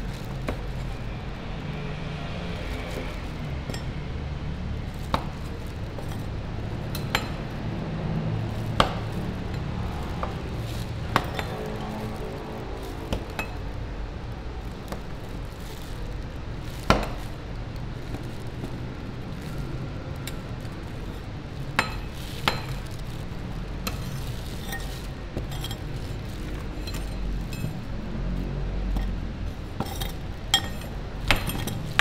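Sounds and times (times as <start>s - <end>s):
metal spatulas clinking and scraping: 23.9s - 27.7s, 29.8s - 32.0s.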